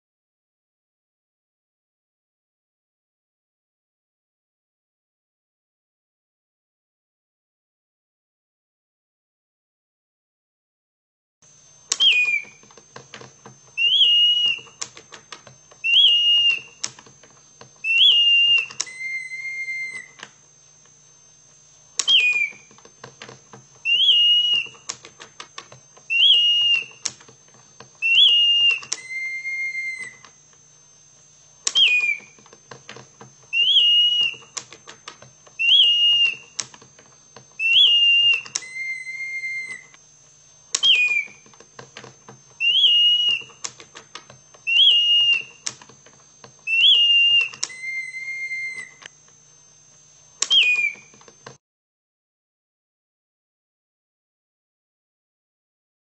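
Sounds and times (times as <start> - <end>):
mechanical bird whistle chirping: 11.9 - 12.8, 13.7 - 17.1, 17.8 - 20.4, 21.9 - 22.9, 23.7 - 27.3, 28.0 - 30.4, 31.6 - 36.8, 37.6 - 40.0, 40.7 - 41.6, 42.5 - 45.9, 46.6 - 49.2, 50.4 - 51.2
wooden cams and levers clicking: 18.0 - 20.3, 22.0 - 29.3, 31.6 - 39.0, 40.7 - 46.2.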